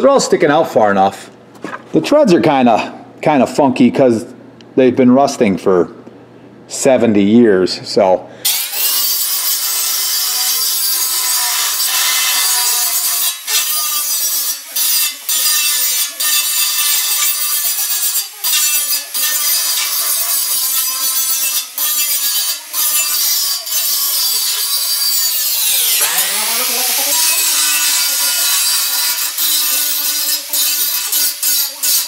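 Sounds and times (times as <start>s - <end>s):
angle grinder grinding steel: 8.4s - 32.0s.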